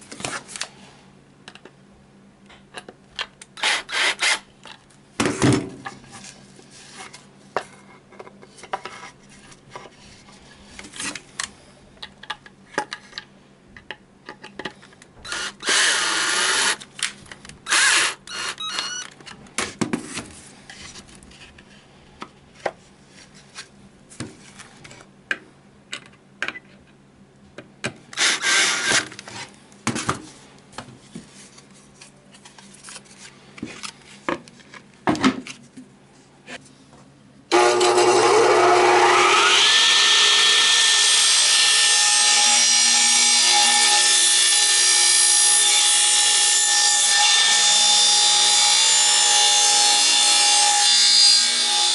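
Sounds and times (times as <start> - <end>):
cordless drill running: 15.3 - 16.8, 17.7 - 19.0.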